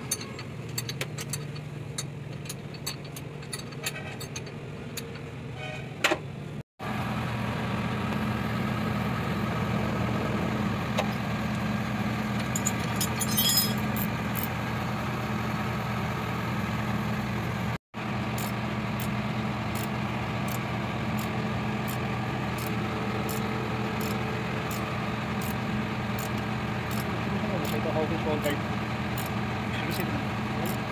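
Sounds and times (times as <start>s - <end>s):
spanner clinking on metal pulley: 0.0s - 5.2s, 12.4s - 14.1s, 29.2s - 30.9s
engine idling: 6.8s - 30.9s.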